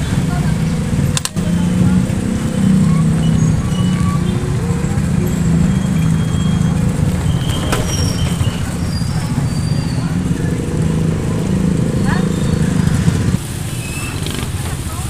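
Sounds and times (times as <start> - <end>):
road rumble with rattling: 0.0 - 15.0
sharp click: 1.2 - 1.4.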